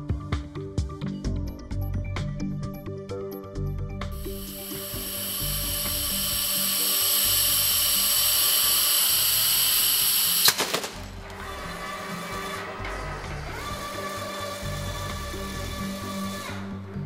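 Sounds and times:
vacuum gripper hissing: 4.2 - 16.8.

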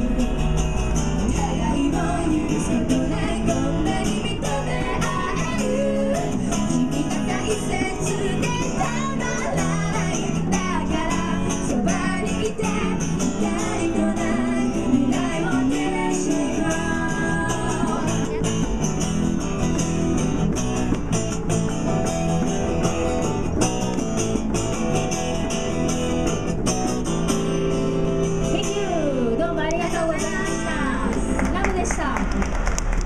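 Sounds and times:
acoustic guitar: 0.0 - 33.0
electric bass: 0.0 - 33.0
women singing: 1.2 - 18.6.

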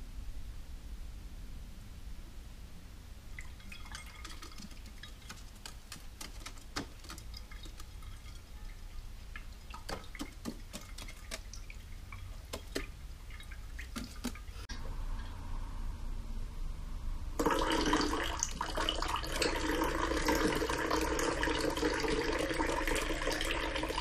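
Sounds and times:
water dripping in a ceramic bowl: 3.3 - 14.7.

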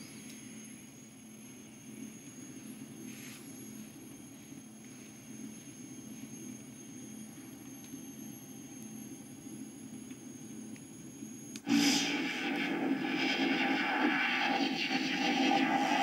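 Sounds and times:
faint high whine: 0.0 - 16.0
low electronic hum: 11.6 - 16.0
loud electronic sound effect: 11.7 - 16.0.

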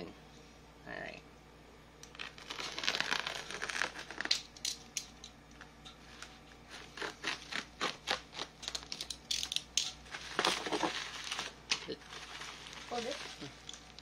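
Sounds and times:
bubble wrap crackling: 2.1 - 4.7, 10.0 - 14.0.

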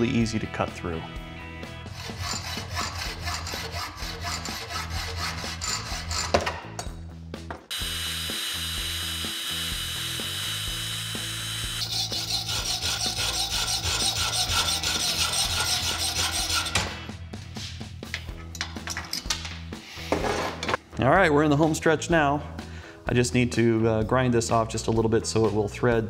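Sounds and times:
hacksaw cutting metal: 1.9 - 6.8, 7.8 - 17.1.

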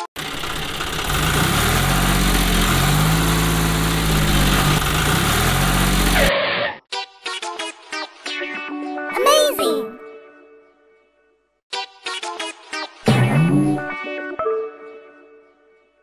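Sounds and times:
tractor engine running: 0.0 - 6.3.

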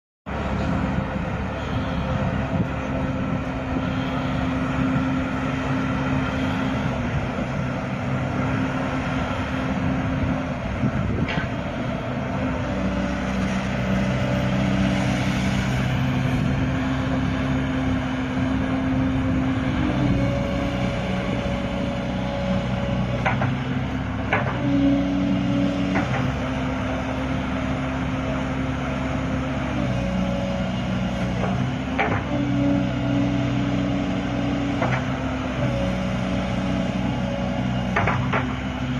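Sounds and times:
excavator diesel engine under load: 0.3 - 38.9.

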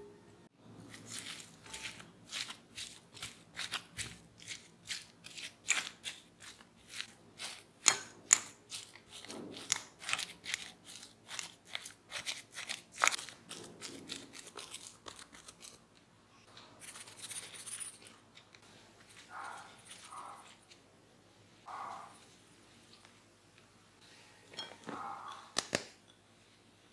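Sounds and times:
fork mashing potatoes in glass bowl: 0.8 - 15.8
seasoning spooned onto food: 0.8 - 15.8.

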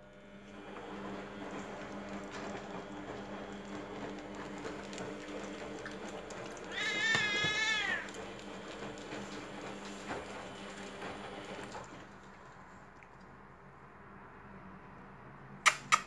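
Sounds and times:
cat meowing angrily: 6.7 - 8.1.

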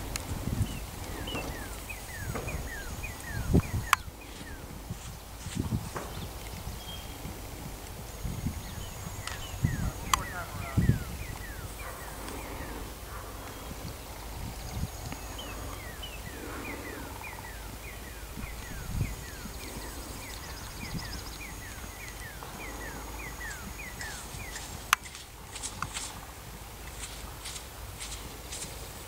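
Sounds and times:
hoofbeats on sand: 0.0 - 7.8, 14.5 - 29.0
bird chirping: 0.0 - 26.4.

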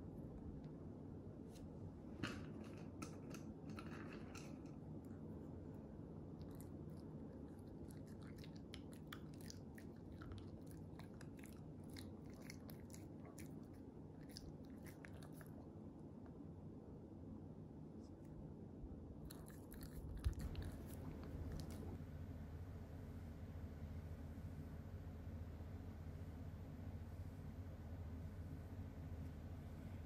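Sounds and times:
faint low hum: 0.0 - 30.0
dog mouth smacking and chewing: 6.4 - 15.6, 19.2 - 22.0.

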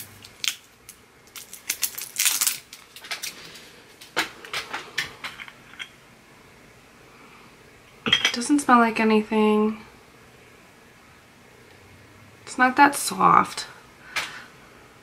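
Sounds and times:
packaging crinkling: 0.0 - 4.2.

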